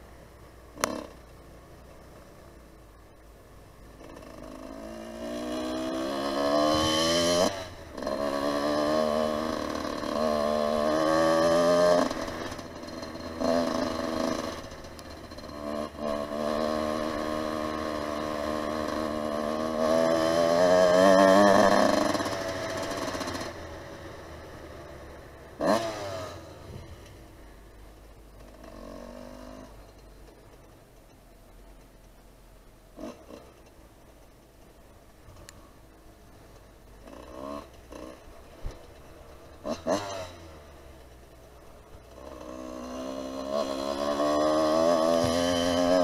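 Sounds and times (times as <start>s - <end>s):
motorbike engine accelerating: 0.7s - 1.4s, 3.8s - 27.4s, 28.2s - 31.1s, 36.5s - 46.0s.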